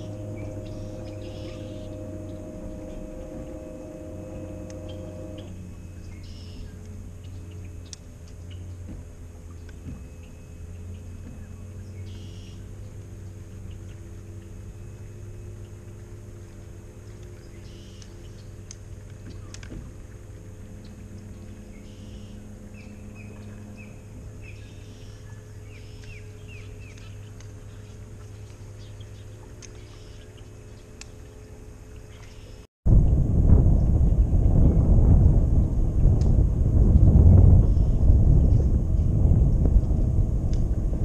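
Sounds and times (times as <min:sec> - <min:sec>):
bird chirping: 0:00.0 - 0:08.8
electric trolling motor humming: 0:00.0 - 0:32.0, 0:34.8 - 0:41.0.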